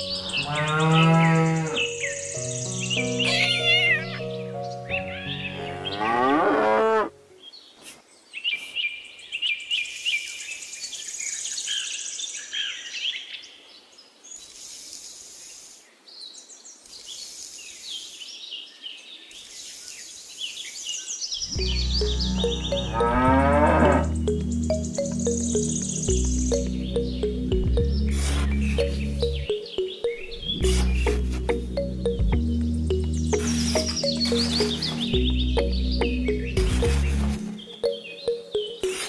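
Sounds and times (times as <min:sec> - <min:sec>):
birds chirping: 0:00.0 - 0:39.0
cow mooing: 0:00.1 - 0:01.8, 0:05.5 - 0:07.1, 0:21.6 - 0:24.2.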